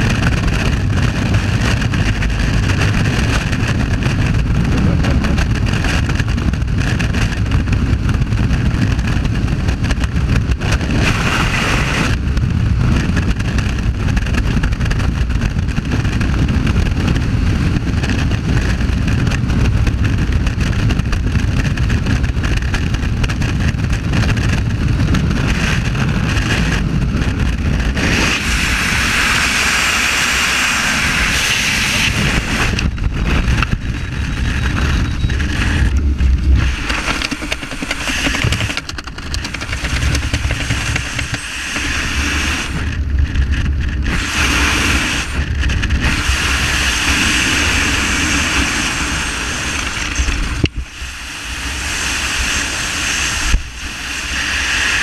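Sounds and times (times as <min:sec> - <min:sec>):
wind rushing over microphone: 0:00.0 - 0:55.0.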